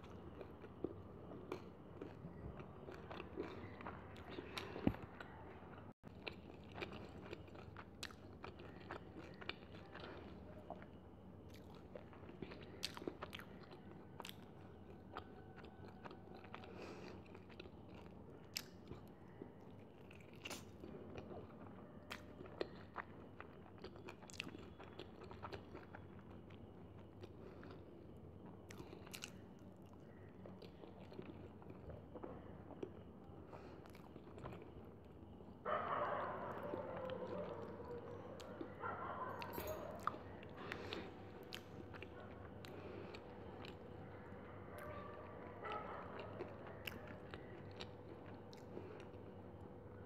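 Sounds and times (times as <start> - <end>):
person chewing crunchy food: 0.0 - 49.7.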